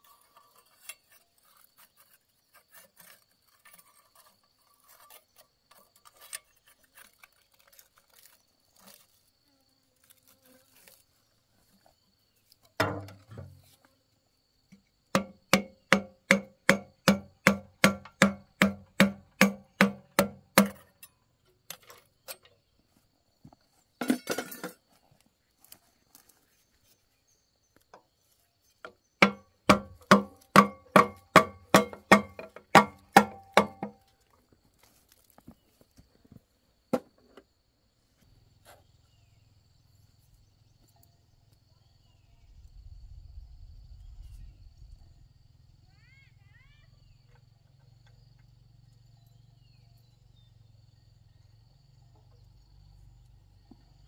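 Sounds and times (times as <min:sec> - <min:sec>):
hammer striking metal: 0:15.2 - 0:20.8, 0:29.2 - 0:33.9.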